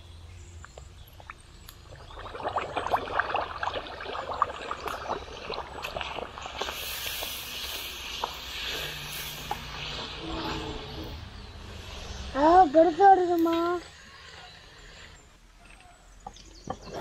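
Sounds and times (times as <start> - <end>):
dough deep-frying in hot oil: 0.7 - 10.2.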